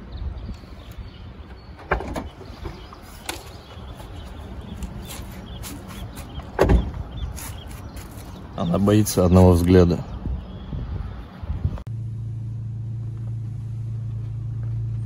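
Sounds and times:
low rumble: 10.1s - 15.0s.

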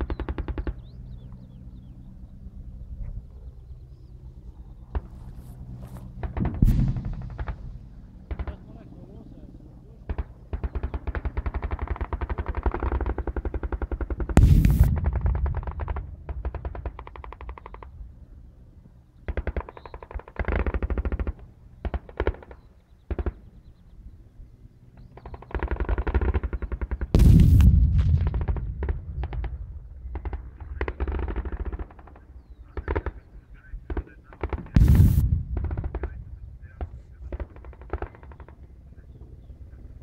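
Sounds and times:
loud rumbling explosion: 6.4s - 7.9s, 14.4s - 16.8s, 27.2s - 30.0s, 34.8s - 37.2s.

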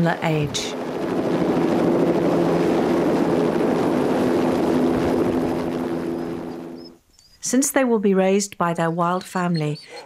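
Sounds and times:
helicopter rotor and engine hum: 0.0s - 7.0s.

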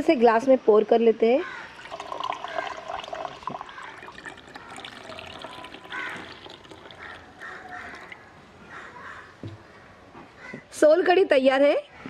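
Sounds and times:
crows cawing: 1.4s - 3.0s, 3.6s - 10.7s
drink pouring into glass: 1.7s - 8.4s.

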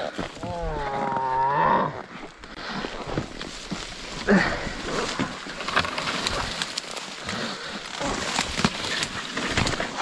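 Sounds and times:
grunt-like voice: 0.0s - 2.0s
brush rustling underfoot: 2.0s - 10.0s.

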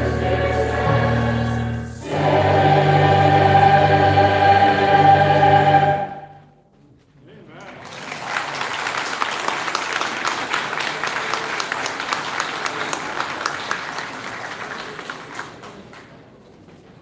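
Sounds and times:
choir singing: 0.0s - 6.5s
audience applauding: 7.6s - 16.1s.

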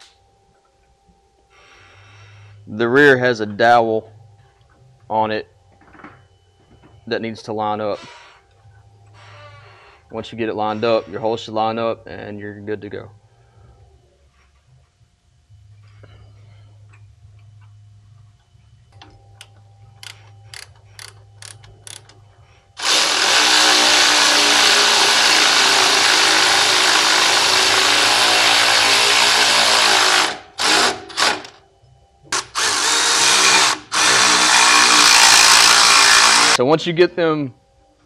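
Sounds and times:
cordless power ratchet running: 32.4s - 36.6s.

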